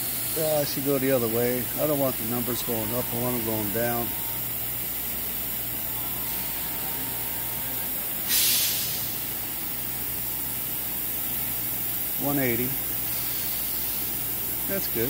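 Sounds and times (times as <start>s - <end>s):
background hum and hiss: 0.0s - 15.0s
compressed air hiss burst: 8.2s - 15.0s.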